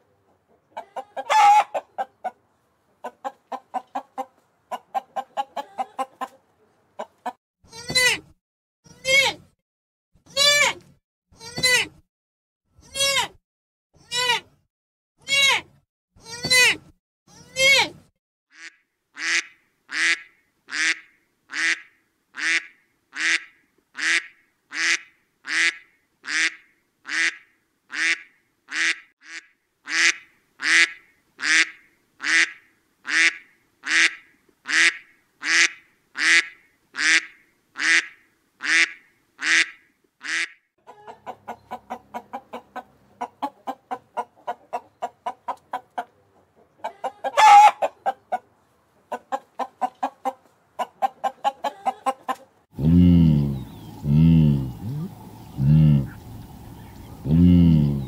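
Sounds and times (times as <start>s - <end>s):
chicken clucking: 0.0s - 7.4s, 40.8s - 58.0s
fowl calling: 0.8s - 2.4s, 46.8s - 48.4s.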